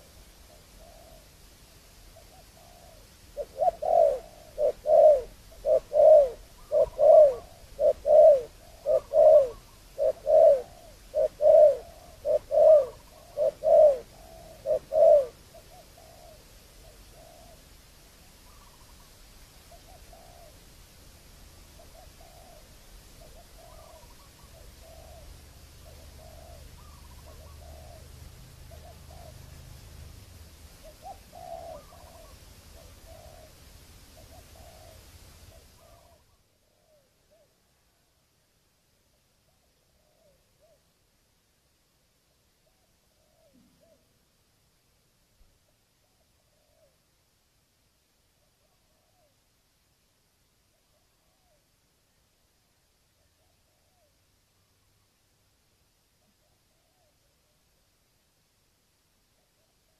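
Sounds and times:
dove cooing: 0.0 - 20.8, 21.6 - 37.7, 39.5 - 40.9, 42.6 - 44.2, 46.0 - 47.1, 48.4 - 49.4, 50.7 - 51.7, 53.2 - 54.2, 56.2 - 57.6.

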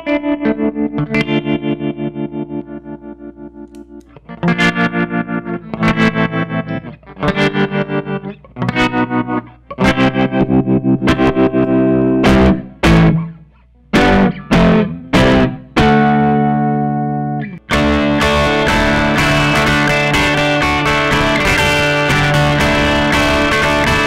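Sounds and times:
electric guitar chords: 0.0 - 24.0
electric guitar strummed quickly: 17.7 - 24.0.

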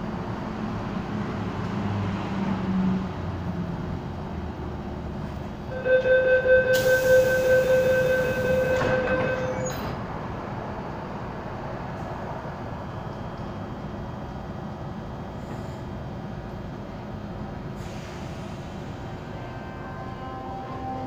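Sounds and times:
train humming at platform: 0.0 - 21.0
high-pitched door warning tone: 5.7 - 9.9
hiss: 17.8 - 19.1.

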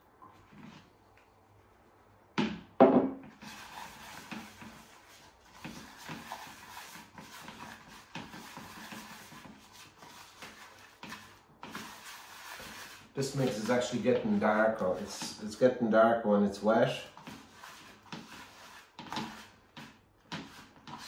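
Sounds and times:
hand mixing bait in tub: 3.3 - 15.6.

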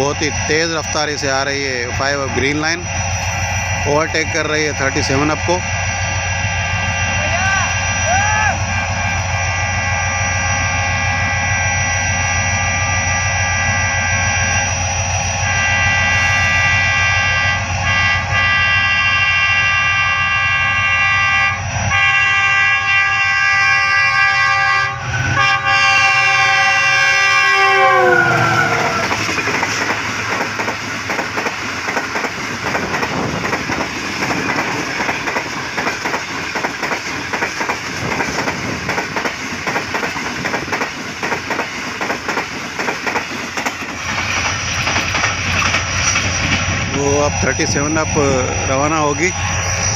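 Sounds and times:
locomotive horn blowing: 7.7 - 29.4
train wheels clicking on rail joints: 28.6 - 47.0.

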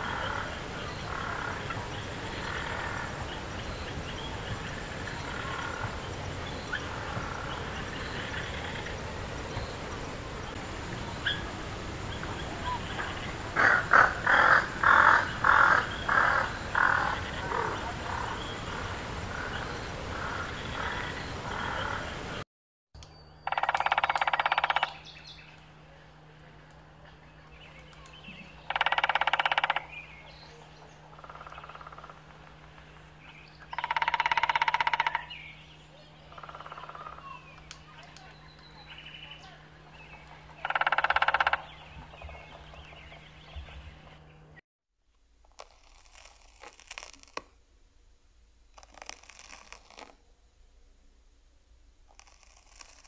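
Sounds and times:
bird calls: 0.0 - 9.9, 23.0 - 44.6
woodpecker drumming on a tree: 23.0 - 44.4, 45.6 - 47.4, 48.7 - 50.1, 52.1 - 53.0.

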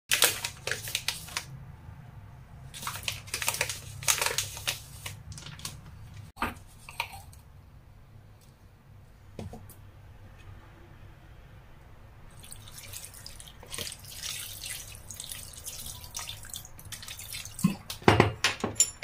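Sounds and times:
plastic packet crinkling: 0.1 - 1.5, 2.8 - 5.9.

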